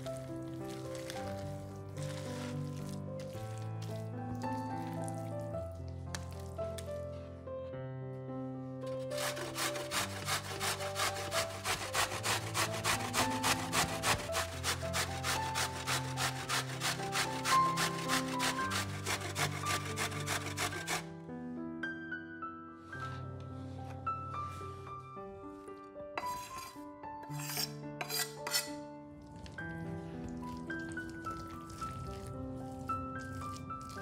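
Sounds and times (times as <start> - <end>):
background music: 0.0 - 34.0
rhythmic scraping strokes: 9.0 - 21.0.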